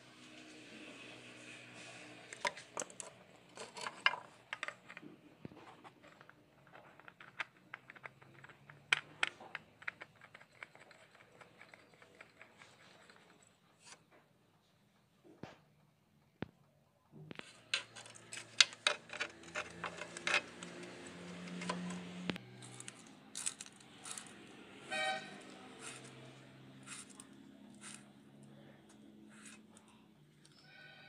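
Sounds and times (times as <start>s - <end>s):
oil filter clicking and scraping: 2.2s - 14.1s, 17.3s - 24.5s, 25.5s - 28.2s.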